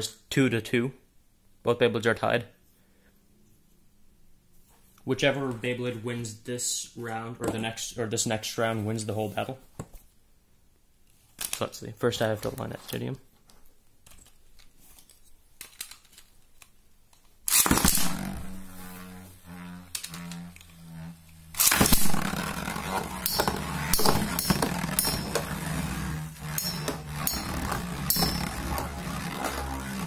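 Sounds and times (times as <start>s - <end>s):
spinning top launch: 17.4s - 30.0s
pulsing spinning hum: 17.7s - 30.0s
spinning tops clacking: 19.8s - 30.0s.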